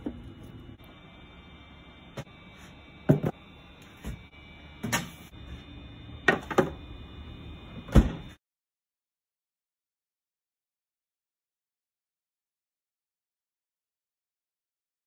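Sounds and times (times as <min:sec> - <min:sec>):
faint steady hum: 0:00.0 - 0:08.4
sharp knocks and clunks: 0:03.1 - 0:03.4.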